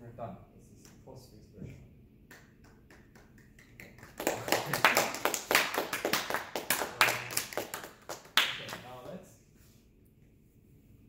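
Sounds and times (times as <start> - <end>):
people clapping: 2.3 - 9.2.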